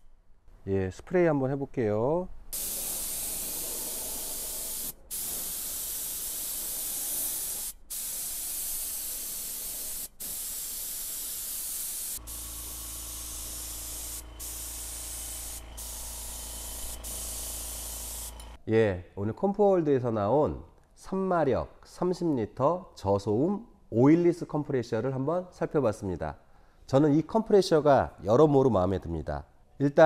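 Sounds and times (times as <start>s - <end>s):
air spray gun hissing: 2.5s - 18.6s.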